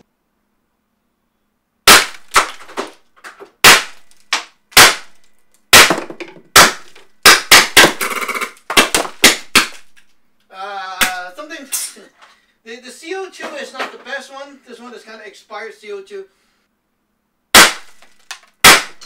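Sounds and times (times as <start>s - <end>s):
paintball gun shots: 1.9s - 2.7s, 3.6s - 4.2s, 4.8s - 9.8s, 17.6s - 19.0s.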